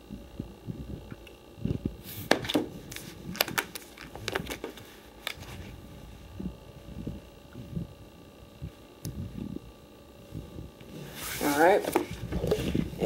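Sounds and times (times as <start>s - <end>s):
plastic binder pages crinkling: 2.2s - 5.7s.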